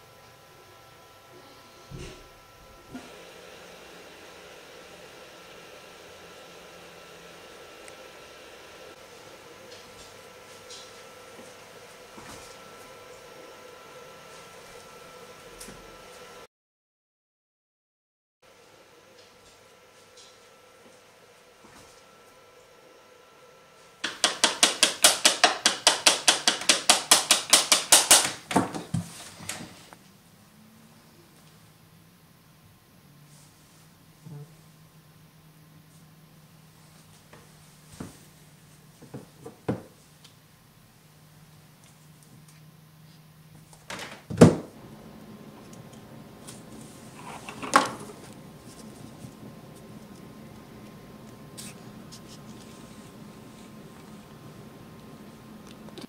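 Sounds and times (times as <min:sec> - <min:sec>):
pencil tapping on tabletop: 0:24.0 - 0:29.0.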